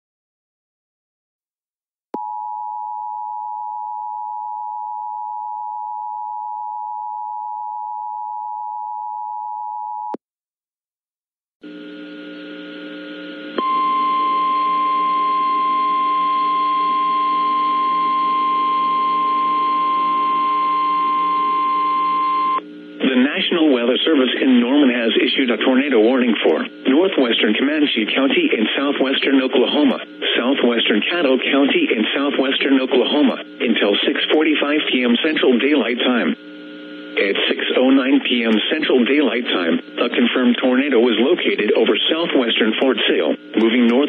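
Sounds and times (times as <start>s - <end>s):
loud steady warning tone: 11.6s - 44.0s
two-tone attention signal: 13.6s - 22.6s
hissy radio background: 23.0s - 36.4s, 37.1s - 44.0s.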